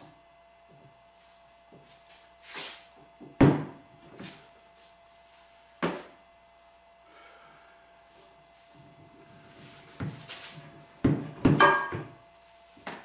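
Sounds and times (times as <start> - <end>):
sharp metal clank: 11.6 - 12.0.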